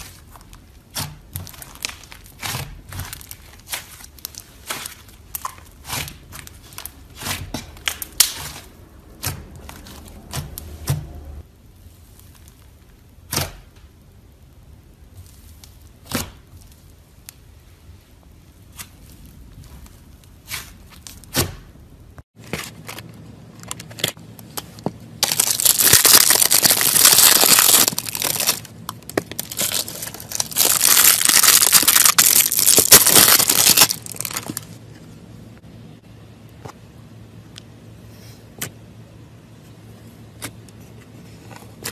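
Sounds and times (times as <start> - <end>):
slime crackling and tearing: 0.0 - 10.9, 25.2 - 34.8.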